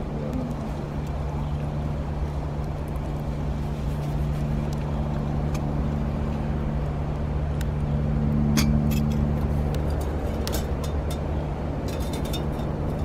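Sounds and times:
low hum and rushing noise: 0.0 - 13.0
wood fire crackling: 0.0 - 13.0.

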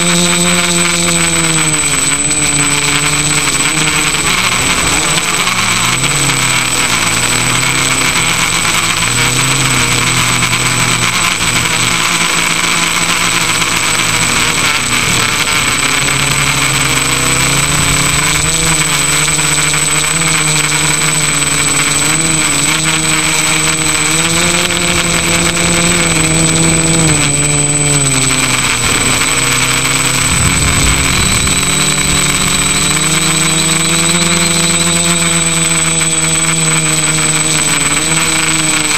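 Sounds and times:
electric motor and propeller whine: 0.0 - 38.9
rush of air: 30.2 - 33.0.

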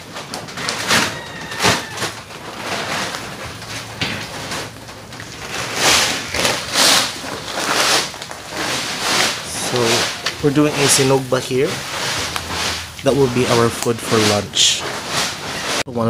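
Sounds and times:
footsteps crunching on dry ground: 4.7 - 15.7.

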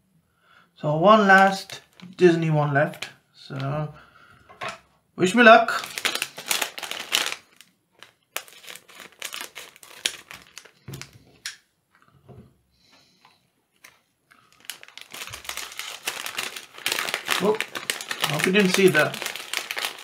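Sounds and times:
foil bag crinkling: 1.4 - 3.1, 5.7 - 11.2, 13.8 - 20.0.

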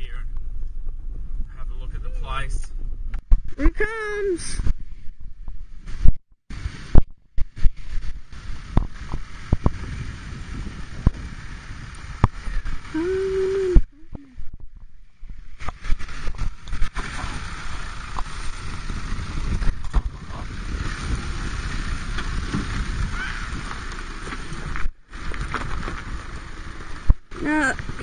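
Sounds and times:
wind buffeting microphone: 4.5 - 28.0
diesel vehicle crawling: 15.3 - 28.0
tyres crunching on loose rock: 22.2 - 27.2.

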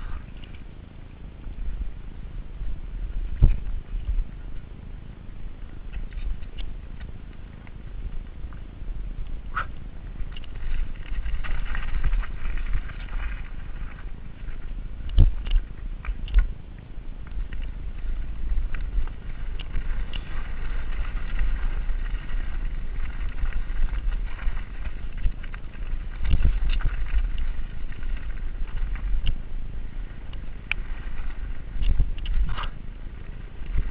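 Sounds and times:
low rumble: 0.0 - 33.9
tyres rolling over dirt and stones: 1.4 - 33.9
bike frame and chain rattling: 17.2 - 32.8.

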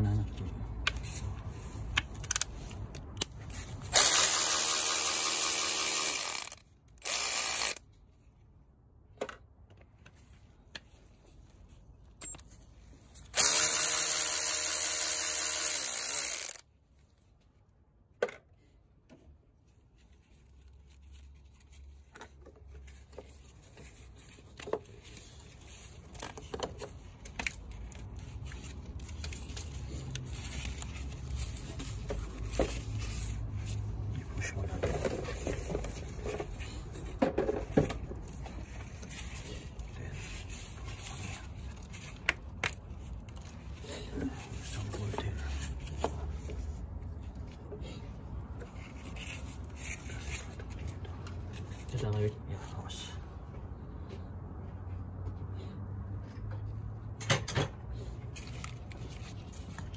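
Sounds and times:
electric ratchet motor running: 3.9 - 7.8, 13.3 - 16.6.

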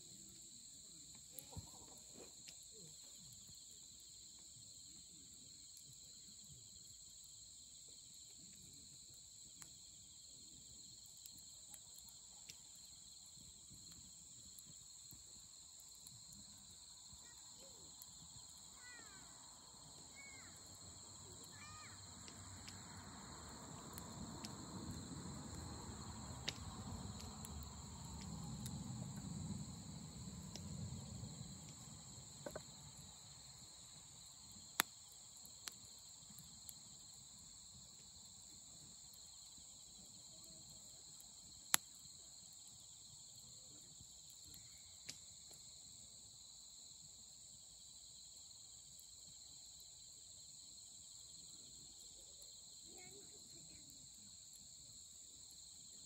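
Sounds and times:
firewood popping: 22.1 - 33.1.

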